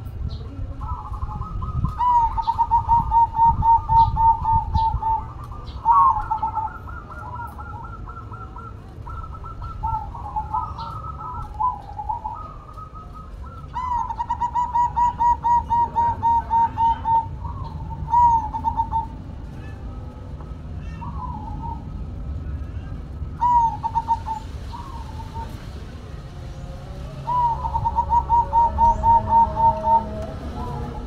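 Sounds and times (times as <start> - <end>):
dove cooing: 0.0 - 31.0
small birds chirping: 0.0 - 31.0.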